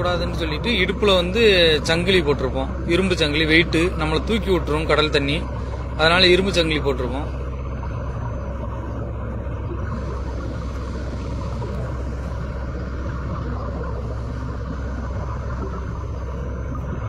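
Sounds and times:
low underwater rumble: 0.0s - 17.0s.

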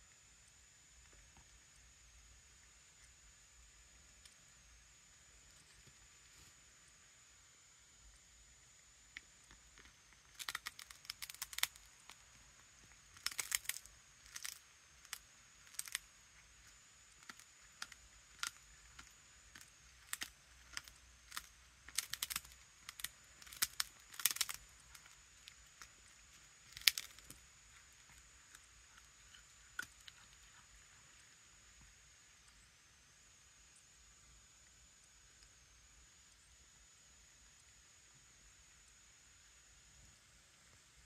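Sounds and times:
cat crunching chicken bone: 9.5s - 16.1s, 17.2s - 31.2s.

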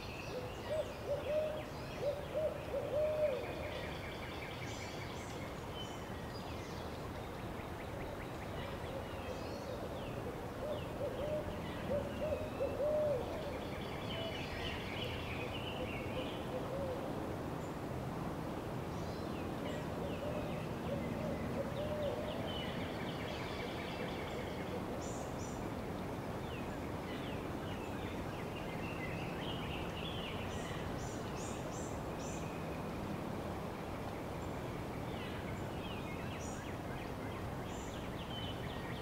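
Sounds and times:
low hooting bird calls: 0.0s - 4.2s, 8.6s - 17.2s, 19.6s - 25.6s
steady outdoor hiss: 0.0s - 39.0s.

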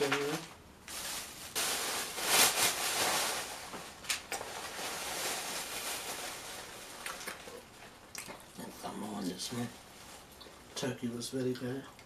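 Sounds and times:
sharp crackle: 0.0s - 7.6s
wrapping rustling and crinkling: 0.0s - 7.9s, 8.9s - 11.4s.

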